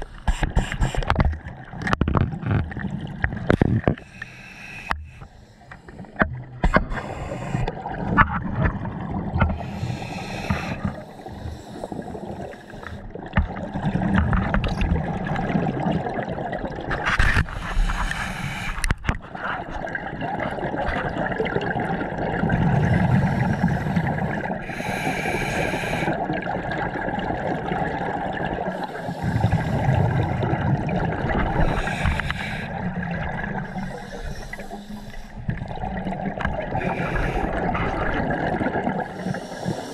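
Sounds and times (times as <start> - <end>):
diver breathing through regulator: 4.0 - 7.8, 9.5 - 13.1, 17.4 - 19.0, 22.8 - 26.2, 28.6 - 30.4, 31.5 - 35.6, 36.7 - 38.0, 39.0 - 39.9
gurgling exhaust bubbles: 26.0 - 34.5, 35.4 - 39.8.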